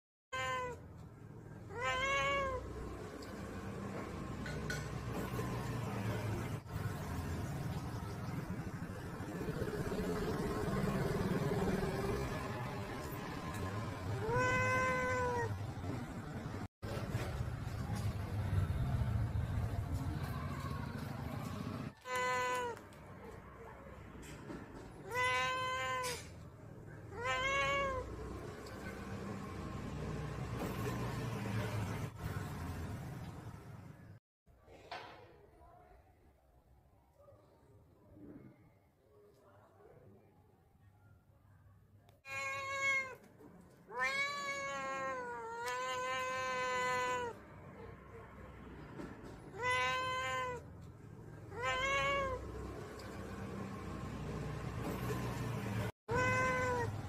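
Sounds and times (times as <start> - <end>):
cat meowing: 0.3 - 0.8, 1.6 - 3.3, 13.0 - 15.7, 21.9 - 22.9, 25.0 - 26.4, 27.0 - 28.9, 42.2 - 47.4, 49.4 - 50.7, 51.3 - 53.1, 55.8 - 57.0.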